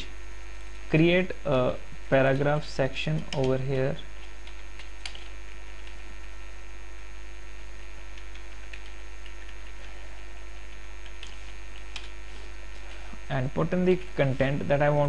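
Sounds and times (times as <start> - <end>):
electrical mains hum: 0.0 - 15.0
faint keyboard clicks: 3.1 - 3.6, 4.2 - 6.0, 8.1 - 9.9, 10.5 - 12.2.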